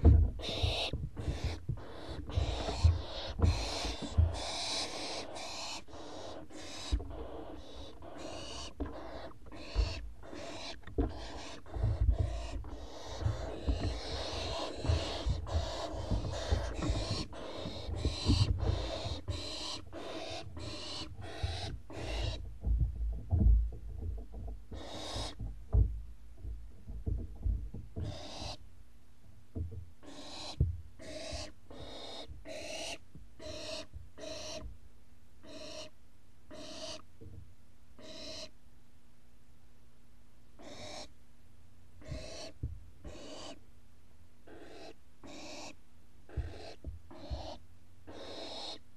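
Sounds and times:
birds thumping in nest box: 0.0 - 28.6.

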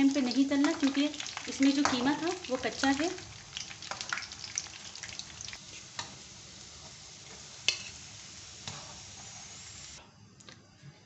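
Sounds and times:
oil sizzling and bubbling: 0.0 - 10.0.

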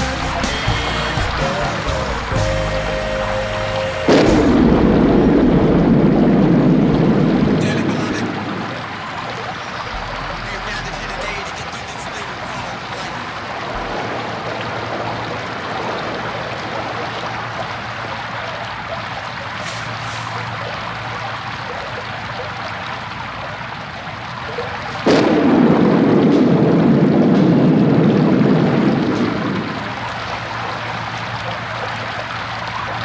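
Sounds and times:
steady rain: 0.0 - 33.0
thunder crack and rumble: 4.1 - 9.0, 13.6 - 17.8, 25.0 - 30.9.

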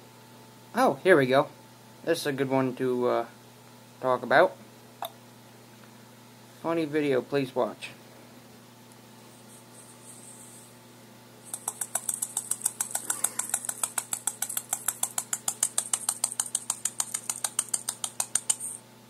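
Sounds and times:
fan humming: 3.9 - 19.0.

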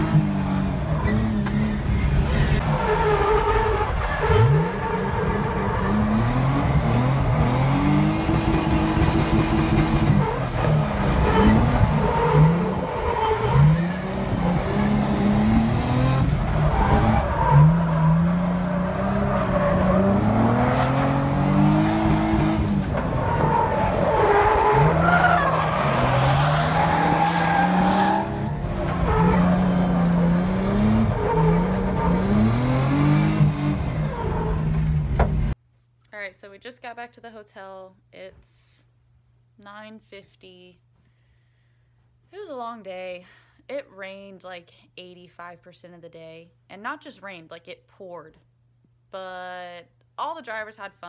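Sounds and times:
car engine revving: 0.0 - 35.6
tyres skidding on pavement: 0.0 - 35.6.

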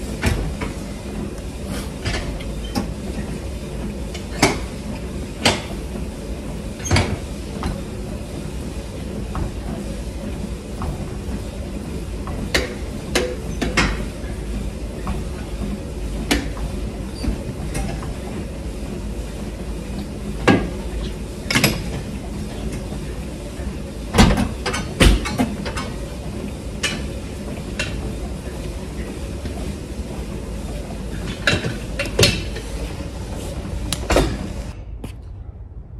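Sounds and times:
low gym hum: 0.0 - 35.9
exercise machine clicks and knocks: 2.0 - 6.0, 9.3 - 14.4, 21.4 - 23.0, 24.1 - 26.0, 31.1 - 32.7.

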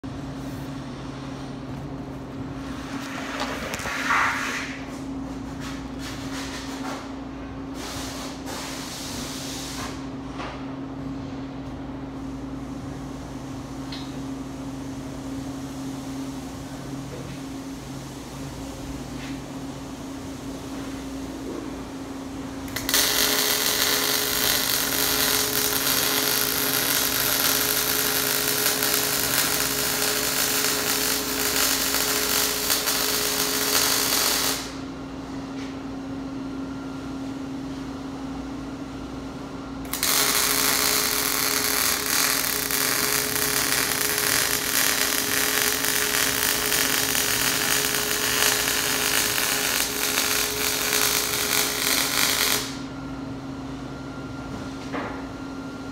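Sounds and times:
low welder hum: 0.0 - 55.9
welding arc crackle and sizzle: 2.9 - 4.8, 22.6 - 34.8, 39.9 - 52.9.

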